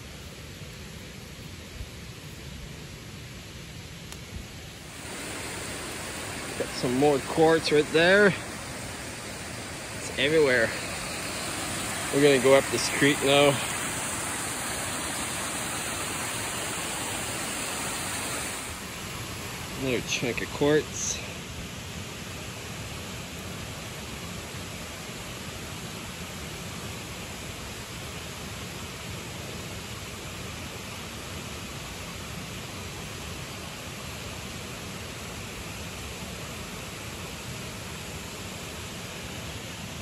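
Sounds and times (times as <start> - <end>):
creek water rushing: 4.4 - 40.0.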